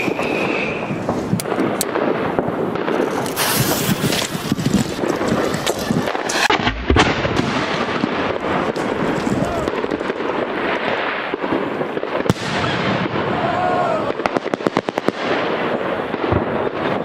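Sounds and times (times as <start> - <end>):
fireworks crackling and banging: 0.0 - 17.0.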